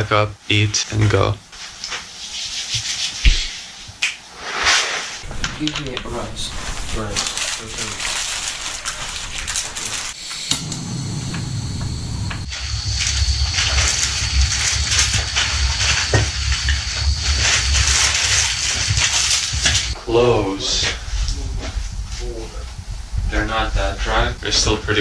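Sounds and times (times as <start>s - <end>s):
gas stove burning with hiss: 0.0s - 25.0s
gear rustling: 5.2s - 10.2s.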